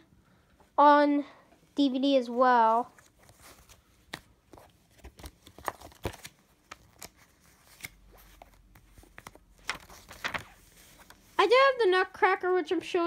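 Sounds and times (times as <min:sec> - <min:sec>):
paper rustling: 0:02.7 - 0:11.4.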